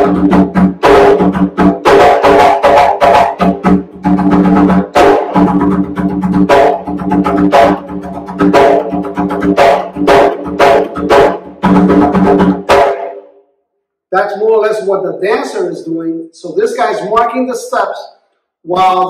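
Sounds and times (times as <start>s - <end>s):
barrel drum played by hand: 0.0s - 13.2s.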